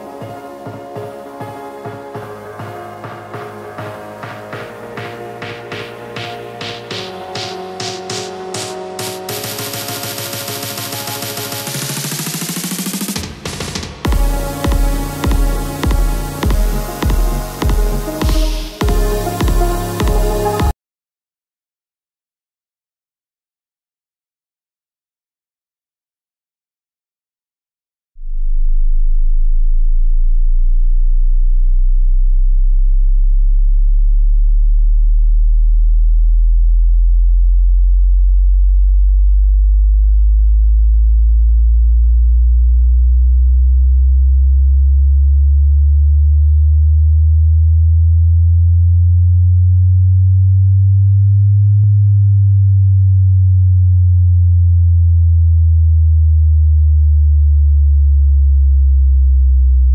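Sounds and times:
deep bass sine tones: 14.0s - 20.7s, 28.2s - 59.9s.

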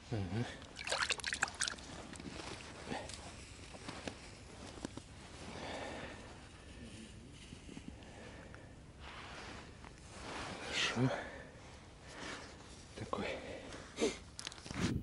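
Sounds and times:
soft scrape: 9.0s - 10.7s.

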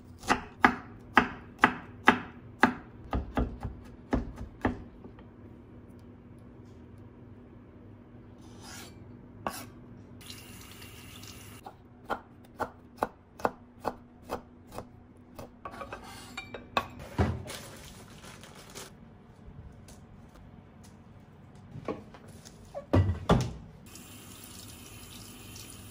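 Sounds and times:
knife chopping on wooden board: 0.2s - 4.9s.

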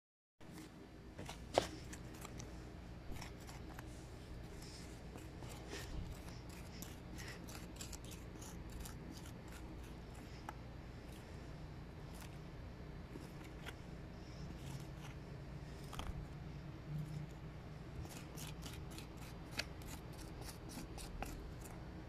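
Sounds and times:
metal spoon scraping sandy soil: 4.7s - 10.2s.

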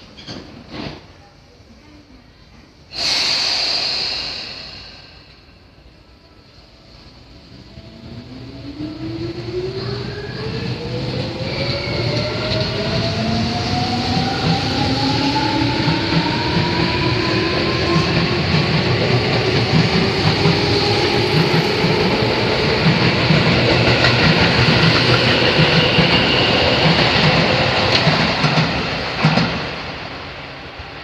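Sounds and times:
train wheels rumbling and clattering: 8.0s - 31.0s.

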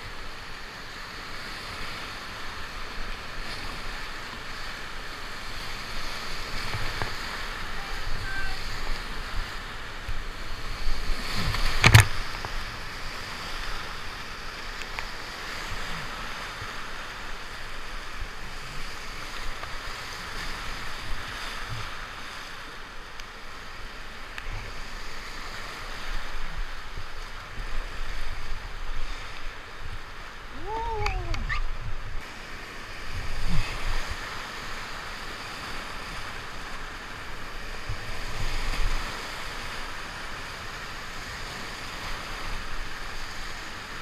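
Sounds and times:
river rapids rushing: 2.0s - 14.5s
water splashing at canoe bow: 8.8s - 14.0s.

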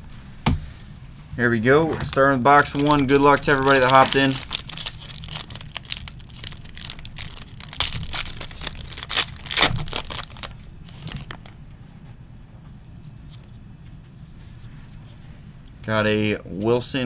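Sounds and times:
foil wrapper crinkling and tearing: 2.1s - 11.6s.

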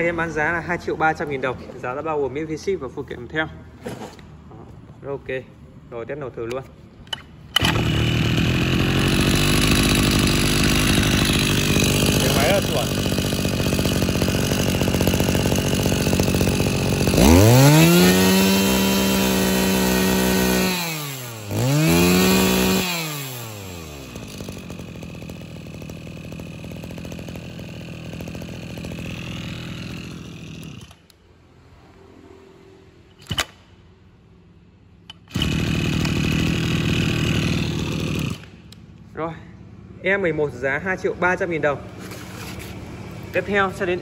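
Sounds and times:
brushcutter engine revving: 6.4s - 31.2s, 33.1s - 33.6s, 35.1s - 39.0s, 41.8s - 44.0s.

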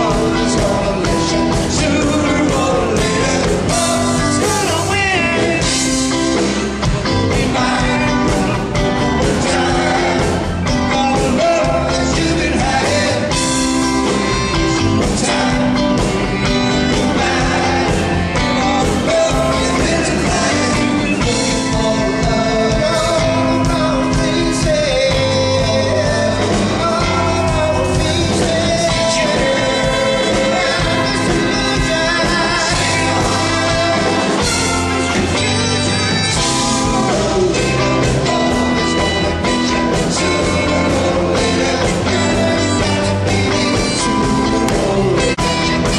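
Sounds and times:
lead singer singing: 0.0s - 45.9s
rock band playing live: 0.0s - 45.9s.

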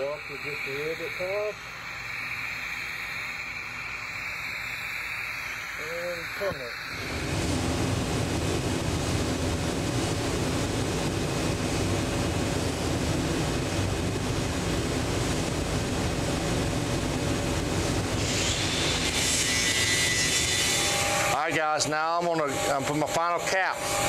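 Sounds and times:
welding hiss and rumble: 0.0s - 24.0s
higher bright hiss: 0.1s - 7.1s.

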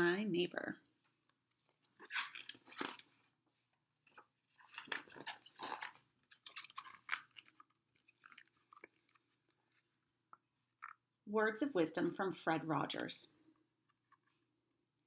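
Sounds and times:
book pages rustling: 1.1s - 11.0s, 13.8s - 14.6s.

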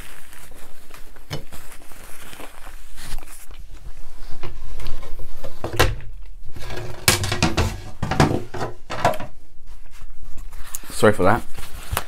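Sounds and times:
paper roll knocks and rustles: 5.4s - 9.4s.

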